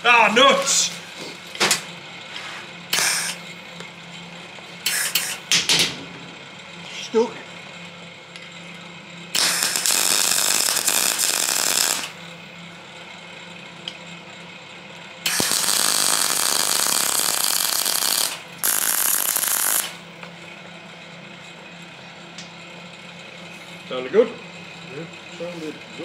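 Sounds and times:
welding crackling hiss: 0:02.9 - 0:03.4, 0:04.8 - 0:05.5, 0:09.4 - 0:12.3, 0:15.3 - 0:20.0.

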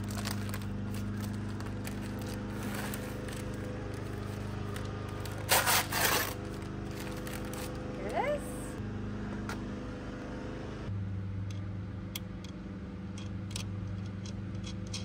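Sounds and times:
paper envelope ripping: 0:00.0 - 0:07.9
steady low hum: 0:00.0 - 0:15.0.

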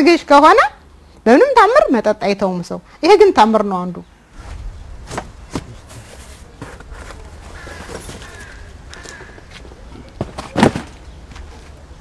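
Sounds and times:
low wind rumble: 0:03.3 - 0:06.0
faint bird calls: 0:06.9 - 0:10.1
cardboard boxes knocking: 0:10.2 - 0:11.0.

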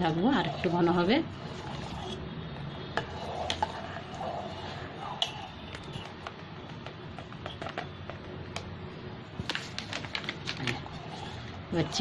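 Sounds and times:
steel spoon scraping a pot: 0:00.0 - 0:06.0, 0:10.8 - 0:12.0.

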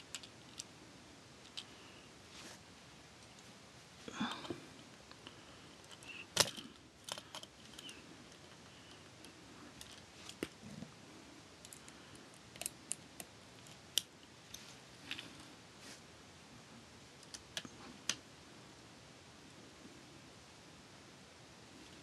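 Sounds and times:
plastic toy parts clicking: 0:00.1 - 0:00.7.

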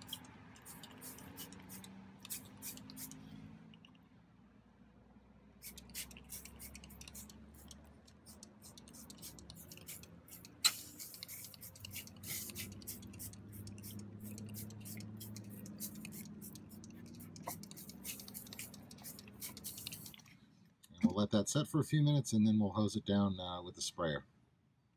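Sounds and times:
spray bottle squirting: 0:00.0 - 0:03.2, 0:05.6 - 0:20.3.

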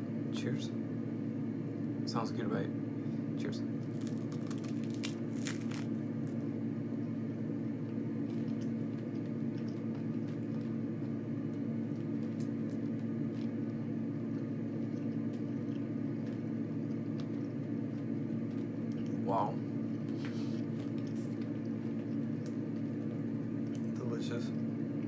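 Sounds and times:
machine humming: 0:00.0 - 0:25.0
faint chewing clicks: 0:07.9 - 0:19.2, 0:20.8 - 0:24.0.

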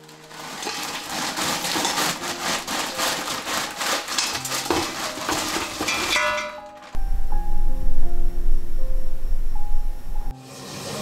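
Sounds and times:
frozen vegetable pieces rattling into pot: 0:00.0 - 0:07.0.

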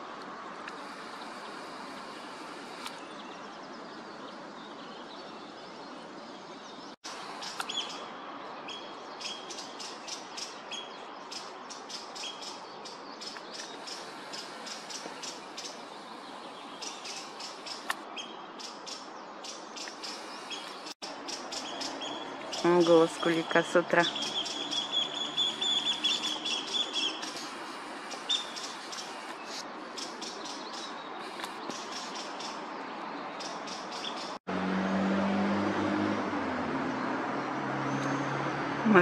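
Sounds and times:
oystercatcher piping calls: 0:19.8 - 0:32.6.

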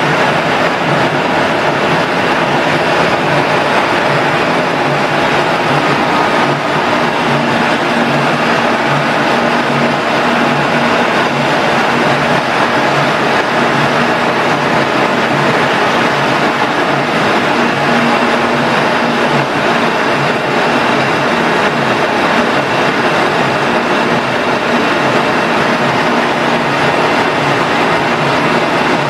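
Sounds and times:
machine mechanical drone: 0:00.0 - 0:29.0.

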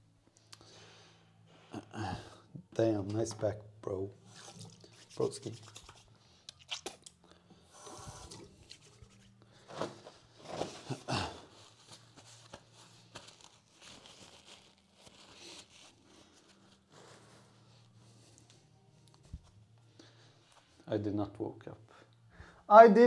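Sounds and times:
rustling handling noise on microphone: 0:08.1 - 0:16.8.

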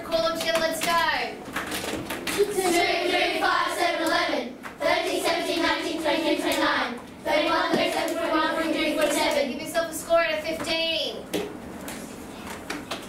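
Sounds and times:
children chanting in unison: 0:02.4 - 0:09.5.

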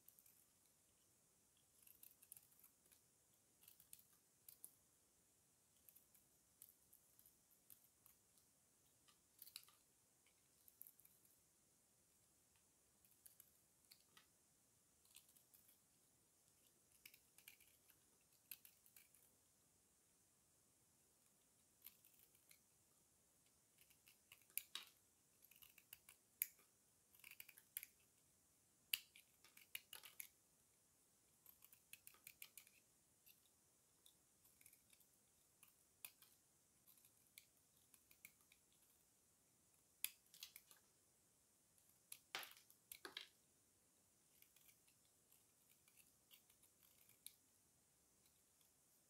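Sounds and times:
knife blade shaving soap: 0:01.5 - 0:04.8, 0:05.7 - 0:11.3, 0:15.0 - 0:19.3, 0:21.6 - 0:22.7, 0:23.5 - 0:28.2, 0:28.8 - 0:30.4, 0:31.3 - 0:39.0, 0:40.0 - 0:40.8, 0:44.2 - 0:47.5.

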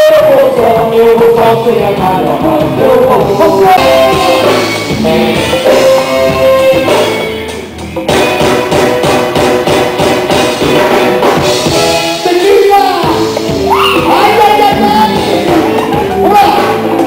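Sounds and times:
person singing: 0:00.0 - 0:07.2, 0:11.8 - 0:17.0
drum kit: 0:00.0 - 0:17.0
electric guitar: 0:00.0 - 0:17.0.

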